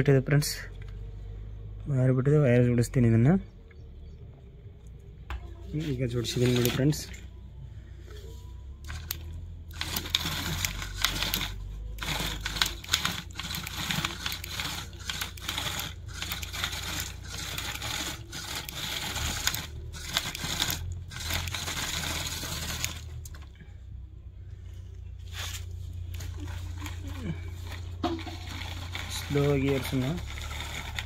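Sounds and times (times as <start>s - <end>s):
small electric motor running: 5.8s - 7.2s, 8.8s - 23.4s, 26.0s - 31.0s
gears clicking and crackling: 5.8s - 7.3s, 8.8s - 23.6s, 25.6s - 31.0s.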